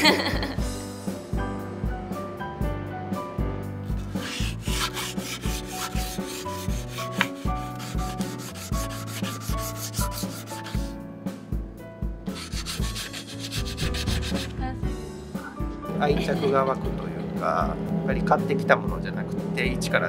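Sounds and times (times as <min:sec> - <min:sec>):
background music with steady beat: 0:00.0 - 0:20.0
sandpaper rubbing on wood: 0:04.0 - 0:11.0, 0:12.4 - 0:14.5.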